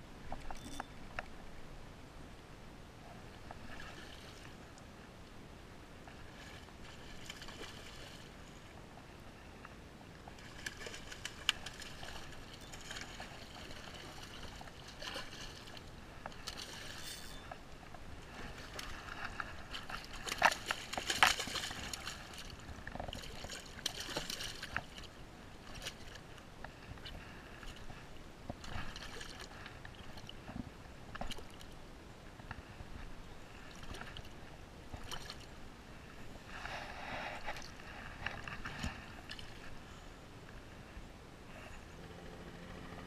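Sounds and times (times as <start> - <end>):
fish splashing in shallow water: 3.5 - 4.7, 6.1 - 8.8, 10.2 - 30.5.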